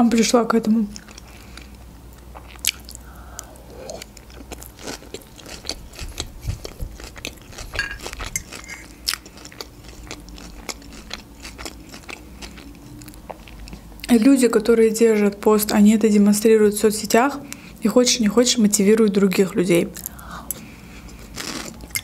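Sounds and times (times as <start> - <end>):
close-up crunchy salad chewing: 0.9 - 14.1, 20.0 - 22.0.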